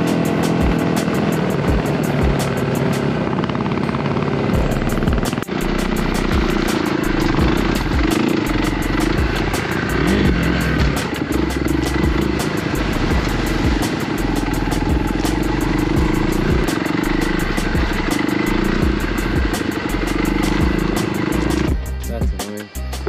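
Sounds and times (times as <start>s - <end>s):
off-road vehicle engine running: 0.0s - 23.0s.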